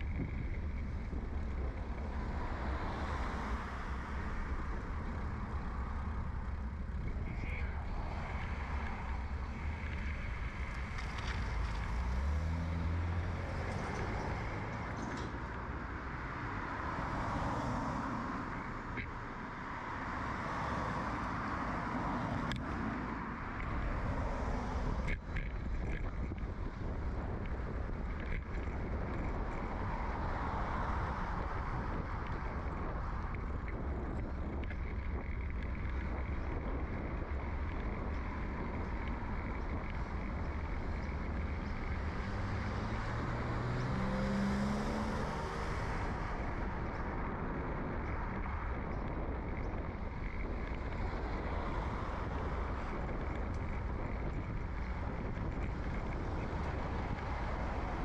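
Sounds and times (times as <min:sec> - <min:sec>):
passing car traffic: 0:00.0 - 0:58.0
wind and road noise rumble: 0:00.0 - 0:58.0
vehicle engine accelerating: 0:08.2 - 0:15.5, 0:23.6 - 0:58.0.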